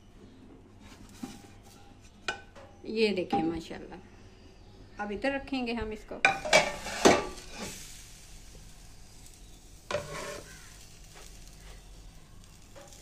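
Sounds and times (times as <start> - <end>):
faint steady hiss: 3.6 - 13.0
frying pan and lid clinking: 6.3 - 7.4.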